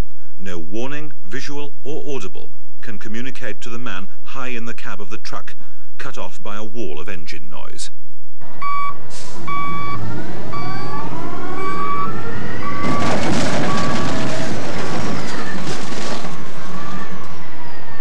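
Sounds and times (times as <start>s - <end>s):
truck engine: 8.4s - 18.0s
reversing alarm beeping: 8.5s - 14.8s
car body crumpling and crunching: 12.8s - 16.7s.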